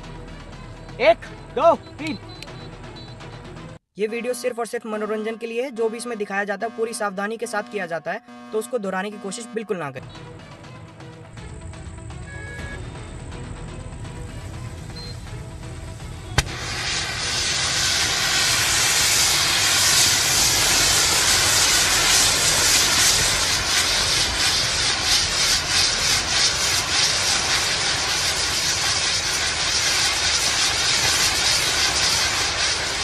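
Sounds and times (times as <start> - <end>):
firework crackling: 14.1 - 33.0
fountain firework hissing: 14.3 - 33.0
firework pop: 16.4 - 16.8.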